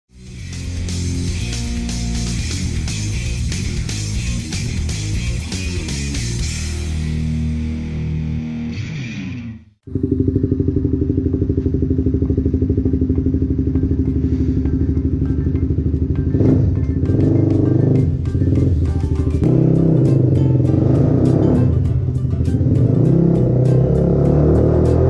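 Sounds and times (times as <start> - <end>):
guitar music: 0.2 - 9.8, 13.7 - 25.0
motorcycle engine idling: 9.8 - 20.7.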